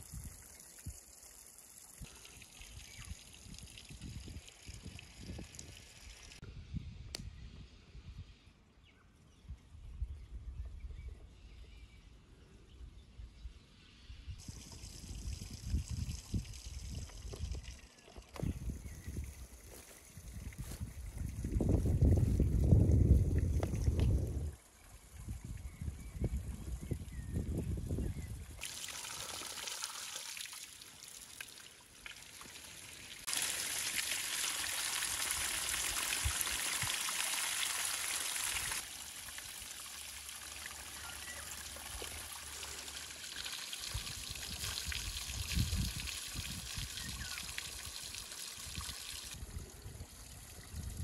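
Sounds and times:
water pouring and splashing: 0.0s - 6.4s, 14.4s - 27.0s, 28.5s - 51.0s.

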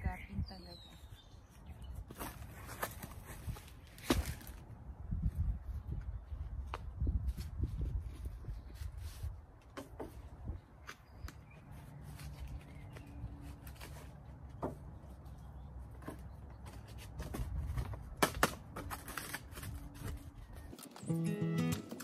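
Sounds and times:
wind rumbling on microphone: 3.2s - 9.5s.

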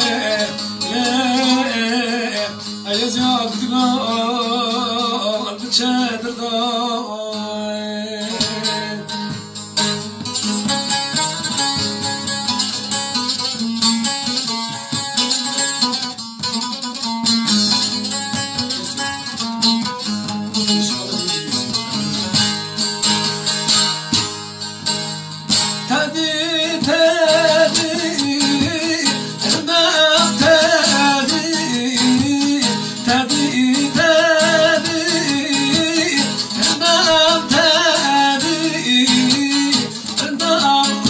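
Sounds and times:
man singing folk song: 0.0s - 15.9s, 24.8s - 41.0s
plucked long-necked lutes: 0.0s - 41.0s.

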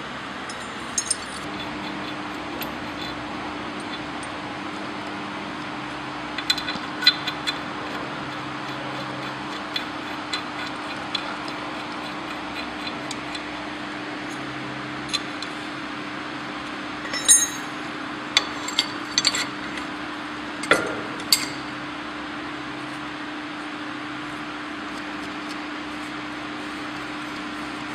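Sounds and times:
steady low hum: 0.0s - 27.9s
metal fittings clicking and clinking: 0.5s - 1.5s, 17.1s - 17.7s.

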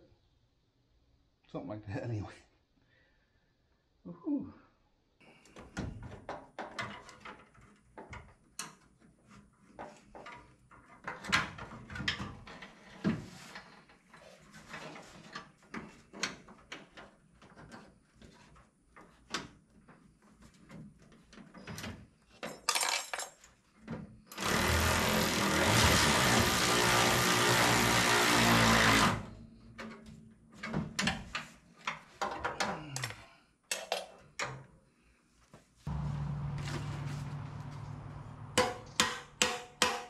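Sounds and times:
loud steady machine noise: 24.4s - 29.3s, 35.9s - 38.8s.

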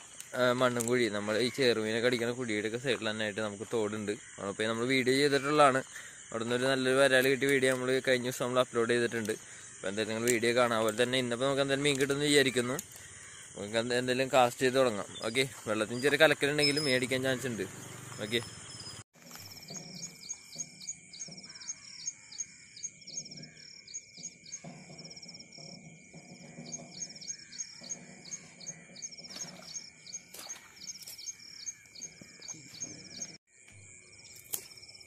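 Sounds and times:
high chirping call: 14.8s - 25.7s.

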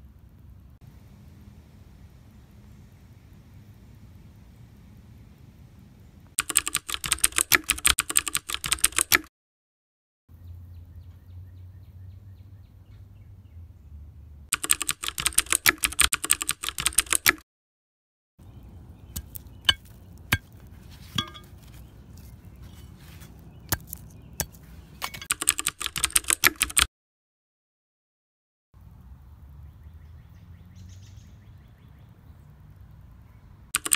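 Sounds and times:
rapid clicking: 6.4s - 9.3s, 14.5s - 17.4s, 25.2s - 26.9s.

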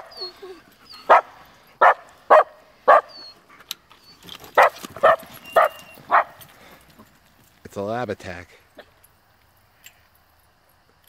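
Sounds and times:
dogs barking: 1.0s - 3.4s, 4.6s - 6.5s.

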